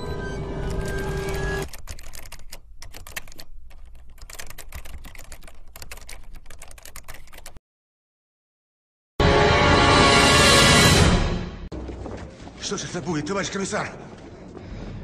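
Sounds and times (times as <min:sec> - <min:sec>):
background music: 0:09.2 - 0:11.7.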